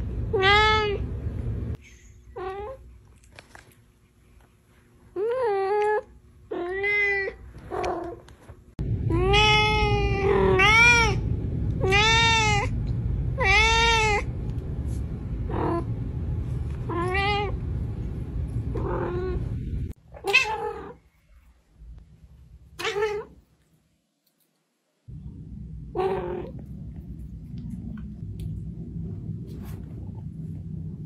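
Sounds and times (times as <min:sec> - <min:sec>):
cat meowing: 0:09.1 - 0:11.2, 0:11.8 - 0:12.8, 0:13.4 - 0:14.3, 0:18.8 - 0:19.4, 0:20.2 - 0:21.0, 0:22.8 - 0:23.4.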